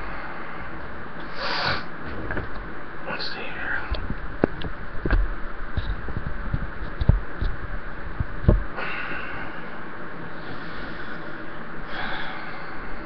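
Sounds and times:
steady breathy hiss: 0.0s - 2.0s, 2.8s - 4.1s, 8.7s - 13.0s.

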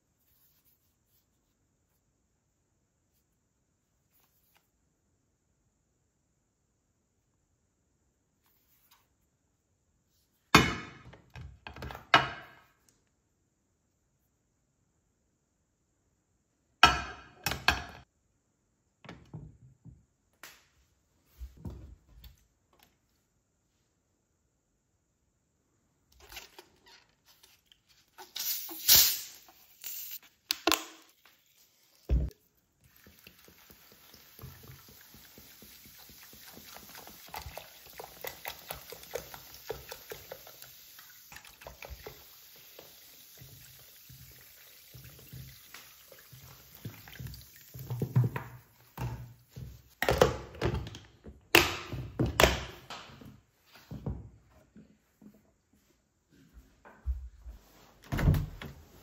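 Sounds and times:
fizzy water pouring and splashing: 31.4s - 48.2s.

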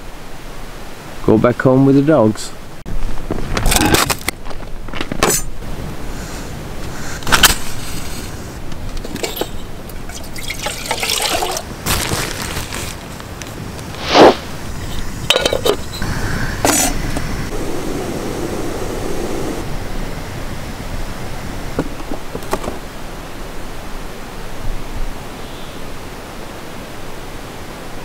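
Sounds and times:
camp gear clattering: 3.4s - 5.6s, 7.2s - 13.6s, 14.9s - 16.0s
water pouring into kettle: 10.0s - 11.7s.

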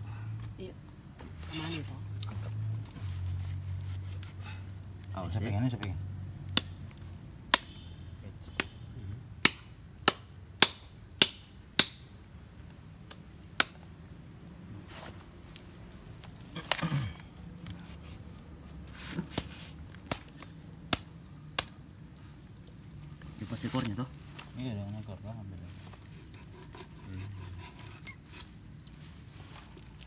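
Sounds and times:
crickets chirping: 0.0s - 30.0s
machete chopping meat and bone: 7.5s - 7.8s, 9.4s - 12.0s, 13.1s - 13.8s, 19.3s - 21.8s.

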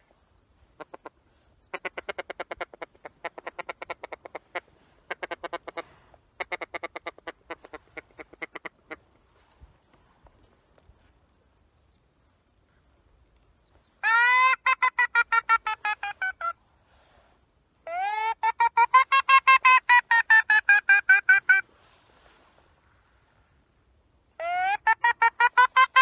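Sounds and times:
duck call quacks: 17.9s - 21.6s.

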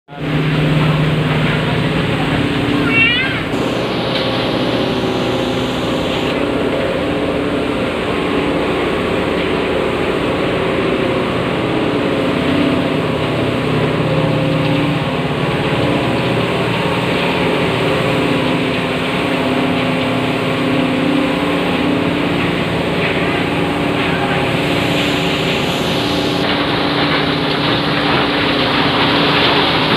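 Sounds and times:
industrial machinery drone: 0.1s - 29.9s
machinery humming: 0.1s - 29.9s
dense rushing noise: 1.0s - 7.0s, 21.2s - 28.4s.

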